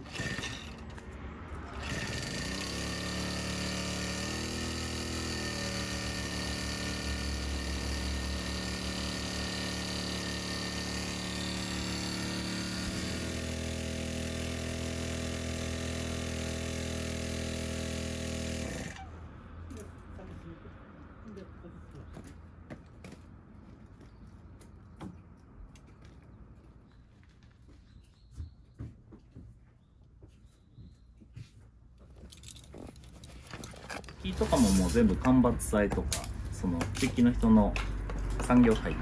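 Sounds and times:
water pump engine running: 0:01.7 - 0:18.9.

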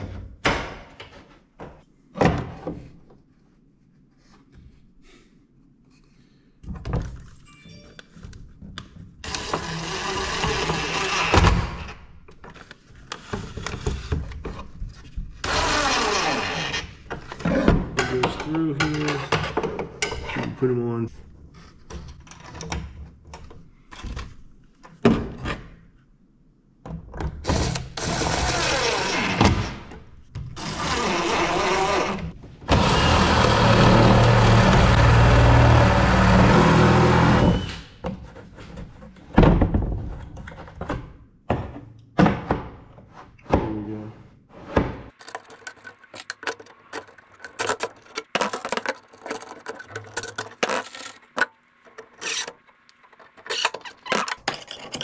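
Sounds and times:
impact driver driving screws: 0:30.6 - 0:37.9.

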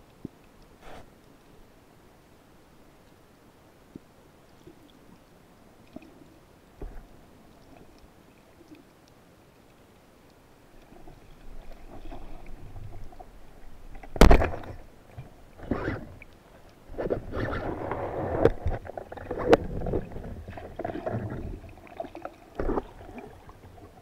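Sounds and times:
faint underwater clicks: 0:00.0 - 0:24.0
swirling water: 0:10.6 - 0:24.0.

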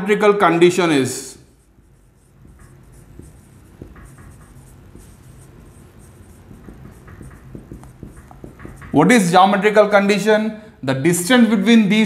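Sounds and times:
low steady hum: 0:01.4 - 0:09.8
marker writing on whiteboard: 0:01.5 - 0:09.7.

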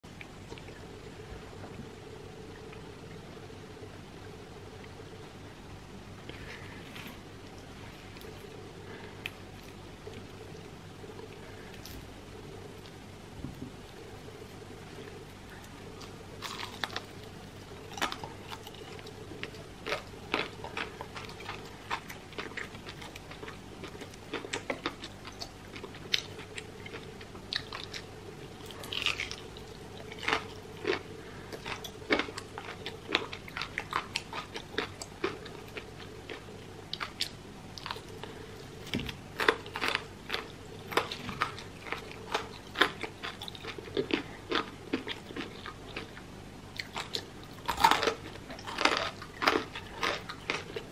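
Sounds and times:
faint steady hum: 0:00.0 - 0:50.9.

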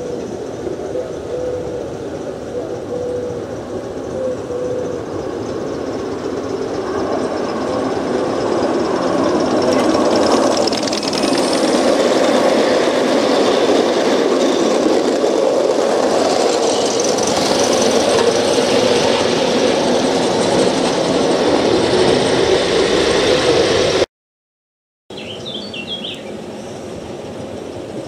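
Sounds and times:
model train wheels rattling: 0:05.3 - 0:19.3.

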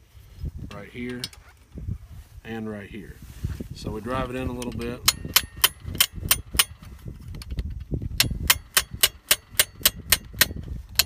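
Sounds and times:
hammer tapping metal punch: 0:04.6 - 0:06.8, 0:08.2 - 0:11.0.

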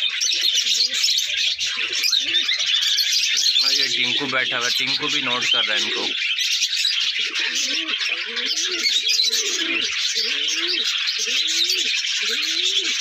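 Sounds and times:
budgerigars chirping: 0:00.0 - 0:13.0
pigeon cooing: 0:00.0 - 0:13.0.

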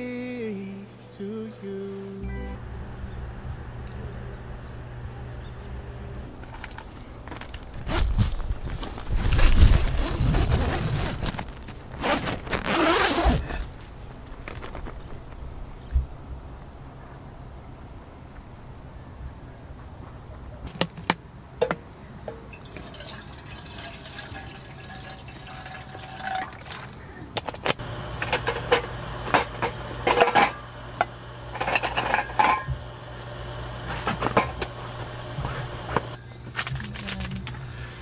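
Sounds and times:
gear clinking and knocking: 0:07.3 - 0:14.9
water pouring into metal kettle: 0:22.5 - 0:27.0.

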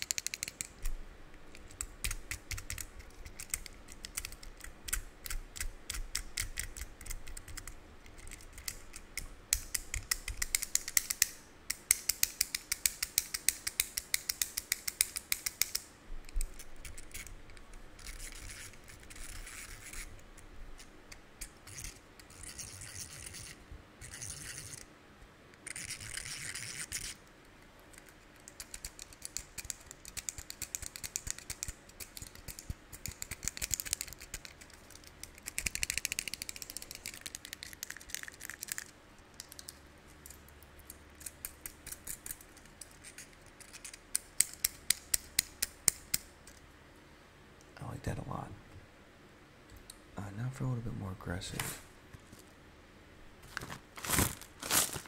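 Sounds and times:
fidget cube clicking: 0:00.0 - 0:20.1, 0:25.6 - 0:27.2, 0:27.9 - 0:46.6
scratchy rubbing: 0:18.0 - 0:20.2, 0:21.6 - 0:24.8, 0:25.6 - 0:27.2.

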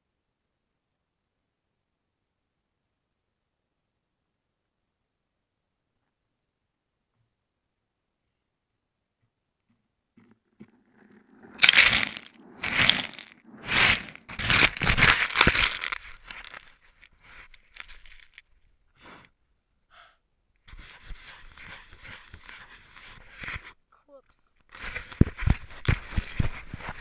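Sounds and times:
rustling: 0:10.6 - 0:18.7, 0:20.7 - 0:23.8, 0:24.7 - 0:27.0
rushing noise on microphone: 0:11.3 - 0:18.4, 0:20.7 - 0:23.7, 0:24.7 - 0:27.0.

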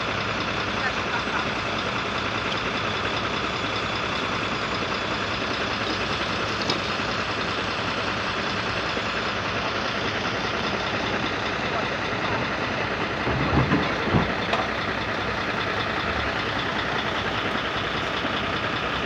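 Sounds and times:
road vehicles running: 0:00.0 - 0:19.0.

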